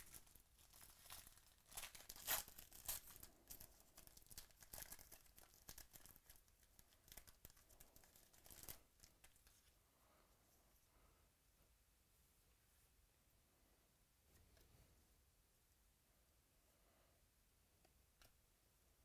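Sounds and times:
foil wrapper tearing and crinkling: 0.0 - 8.8.

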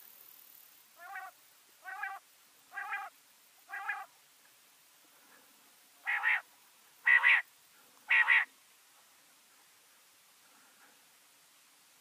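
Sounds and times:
quail harsh calls: 1.0 - 3.1, 3.7 - 4.1, 6.0 - 7.5, 8.1 - 8.5.

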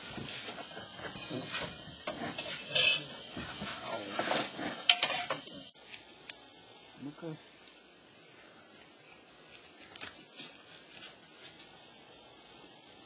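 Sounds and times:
dishes and utensils clattering: 0.0 - 5.6
background hiss: 0.0 - 13.0.

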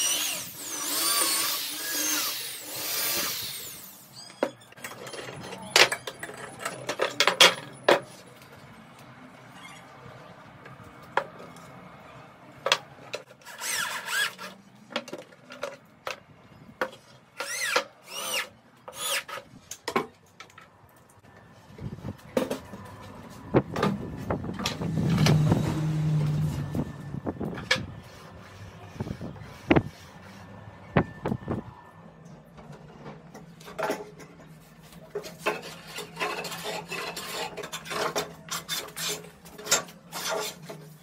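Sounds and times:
electric drill whining into wood: 0.0 - 4.4, 24.7 - 26.9.

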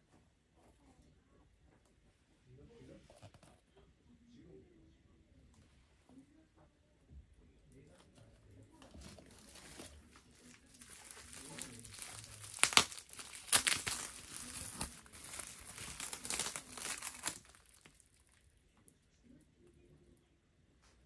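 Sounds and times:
bubble wrap and plastic crinkling: 8.7 - 18.4.

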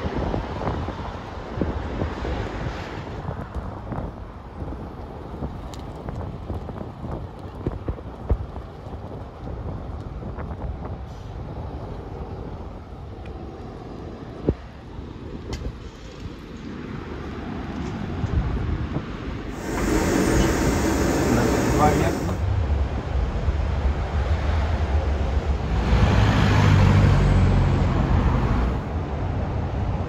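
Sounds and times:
traffic rumble: 0.0 - 30.0.

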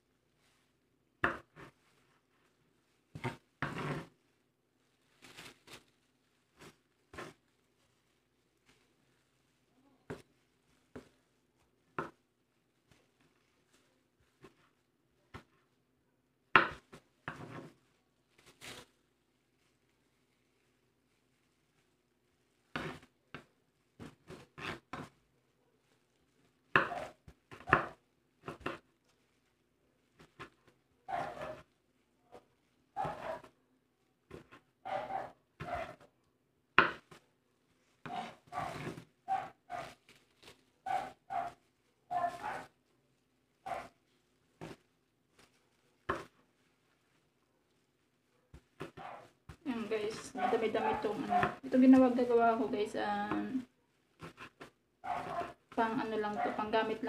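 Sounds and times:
knife cutting on a cutting board: 33.0 - 33.5.

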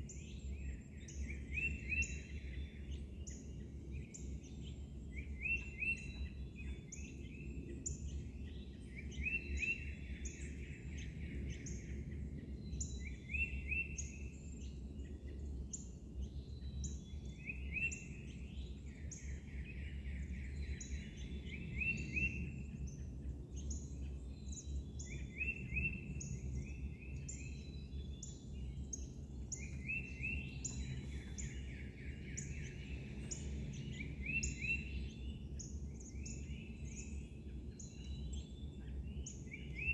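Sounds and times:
steady low rumble: 27.9 - 37.0.

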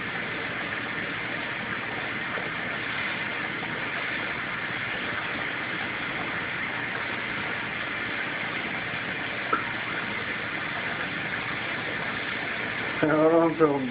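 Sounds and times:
aquarium filter running: 0.0 - 13.9.

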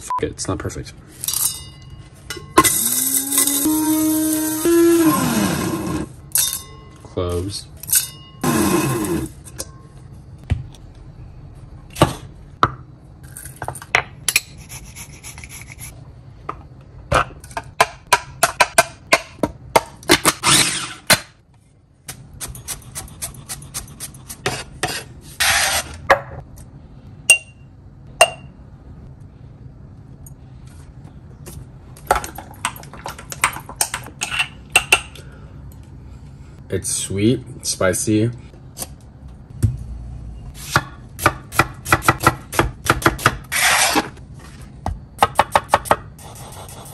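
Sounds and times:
metal spoon clinking in glass jar: 6.3 - 7.0.

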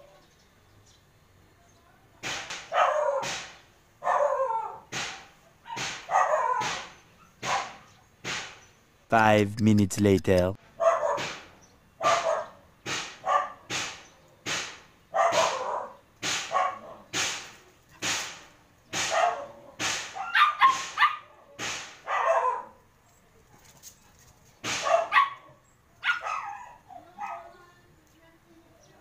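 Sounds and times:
dog barking: 2.7 - 3.4, 4.0 - 7.9, 10.8 - 11.4, 12.0 - 12.6, 13.2 - 13.7, 15.1 - 17.1, 19.0 - 21.4, 22.0 - 22.8, 24.7 - 27.6.

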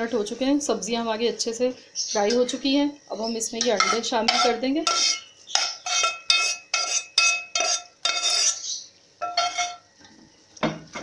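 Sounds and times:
metal spoon scraping steel pot: 3.6 - 9.8.

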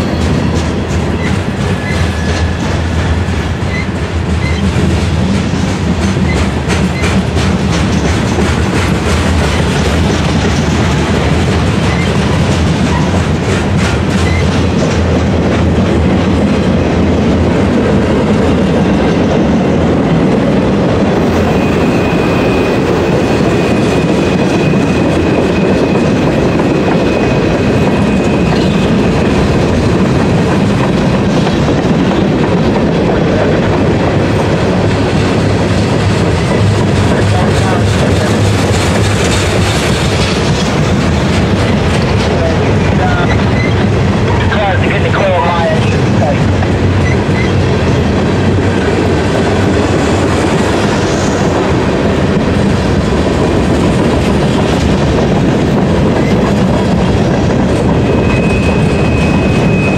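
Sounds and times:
wheels clacking over rail joints: 0.0 - 19.2, 23.7 - 44.4
freight train rumbling past: 0.0 - 59.9
high-pitched wheel squeal: 21.4 - 29.4, 43.2 - 43.8, 57.9 - 59.9.

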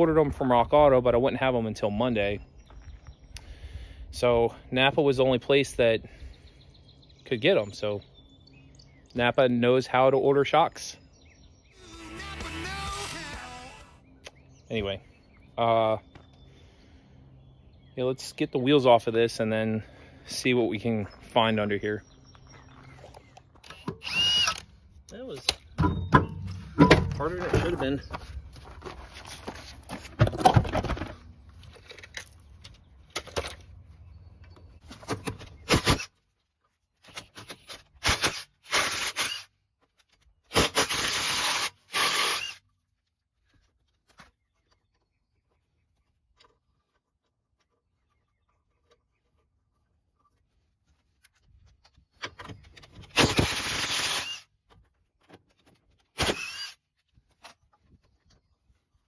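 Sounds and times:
clunks and scrapes of handling: 25.4 - 33.7.

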